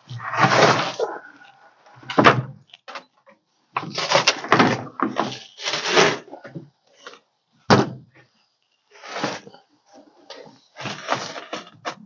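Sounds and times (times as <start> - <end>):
carpet and debris scraping: 0.0 - 1.7, 3.8 - 6.4, 8.9 - 9.6, 10.4 - 12.0.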